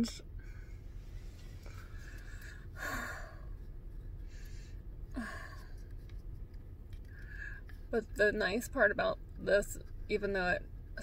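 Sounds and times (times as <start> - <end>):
woman sighing: 5.2 - 5.7.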